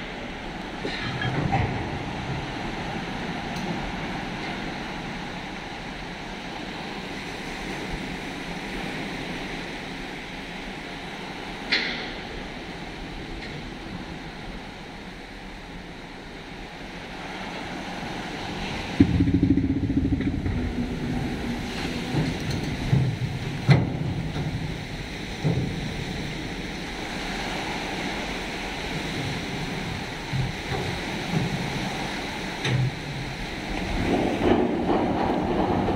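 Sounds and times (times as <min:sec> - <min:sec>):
surf washing over shore: 0:00.0 - 0:35.9
low rumble with hum: 0:11.0 - 0:35.9
sharp knocks: 0:19.0 - 0:24.5.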